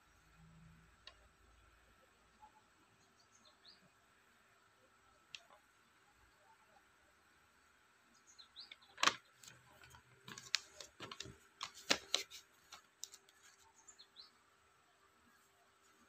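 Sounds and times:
paper and plastic packaging crinkling: 9.0s - 13.6s.

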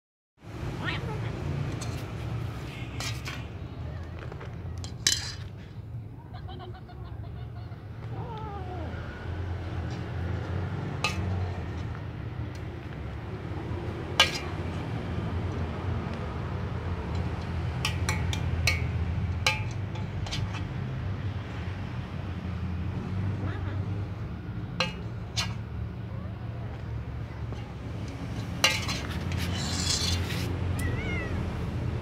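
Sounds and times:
cat meowing: 30.7s - 31.7s.

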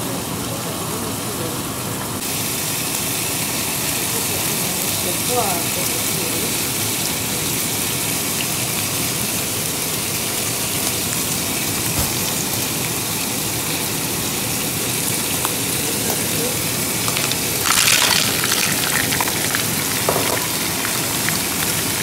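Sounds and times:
garlic sizzling in oil: 2.2s - 22.0s.

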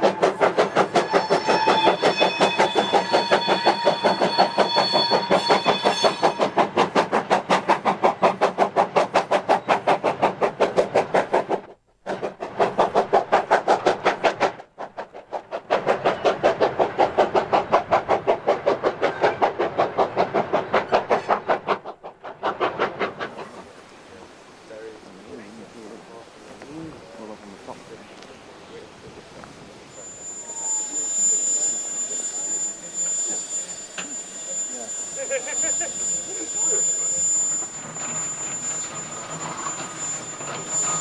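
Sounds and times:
steam locomotive exhaust beats: 0.0s - 41.0s
faint high steady tone: 29.7s - 41.0s.

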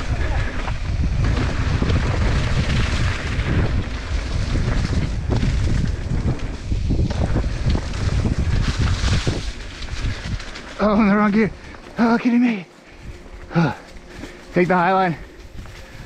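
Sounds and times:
wind noise on microphone: 0.0s - 11.8s, 12.9s - 16.0s
bike rattling over bumps: 0.0s - 12.2s
tyres rolling on dirt: 0.0s - 12.3s.

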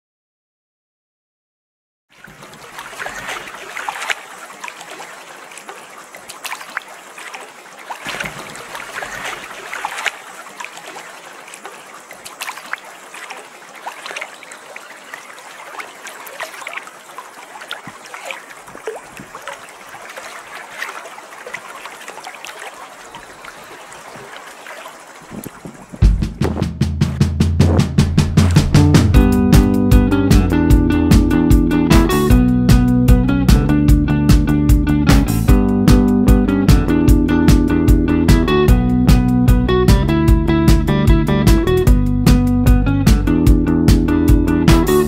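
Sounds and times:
water lapping and trickling: 2.1s - 26.7s.

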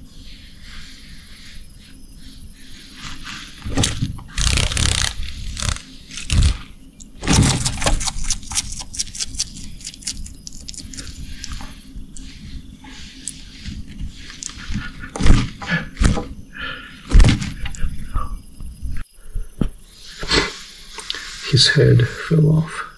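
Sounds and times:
lizard crunching insect: 3.8s - 16.2s.

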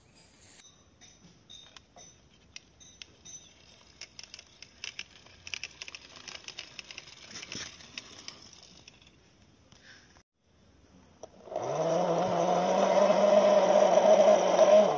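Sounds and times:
toy car wheels rolling on concrete: 1.5s - 9.8s.

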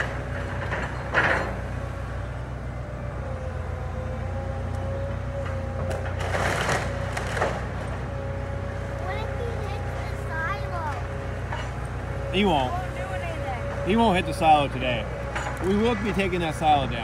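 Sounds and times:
excavator diesel engine running: 0.0s - 17.0s
wood cracking and crushing: 5.3s - 8.1s
loud crunch: 5.9s - 7.9s.

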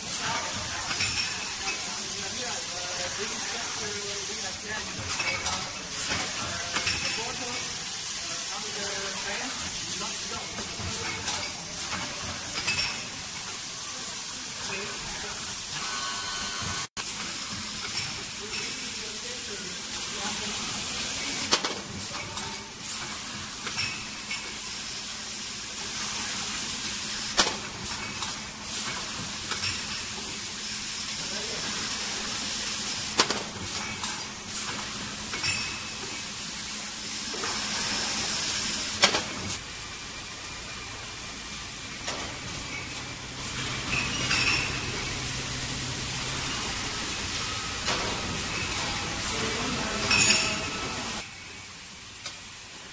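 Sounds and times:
machine hiss: 0.0s - 52.9s
glass bottles clinking: 0.9s - 1.9s, 4.8s - 7.6s, 10.6s - 13.2s, 27.9s - 30.3s, 35.3s - 36.2s, 42.0s - 45.3s, 47.4s - 49.2s, 49.8s - 51.2s.

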